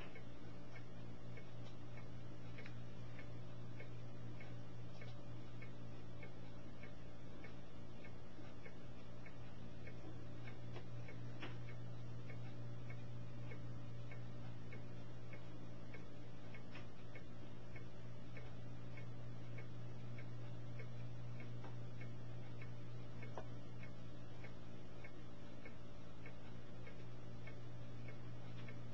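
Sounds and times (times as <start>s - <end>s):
faint regular ticking: 0.0s - 28.9s
steady low hum: 0.0s - 28.9s.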